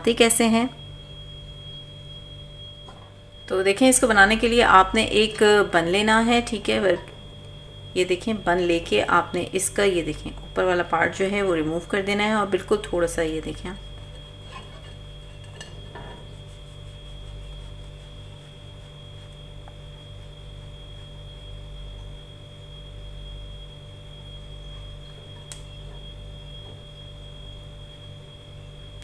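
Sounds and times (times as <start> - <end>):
electrical hum: 0.0 - 29.0.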